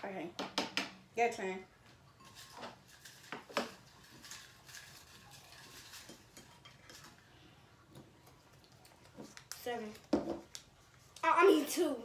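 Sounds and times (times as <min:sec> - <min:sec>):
paper slips rustling in bowl: 0:02.2 - 0:06.4.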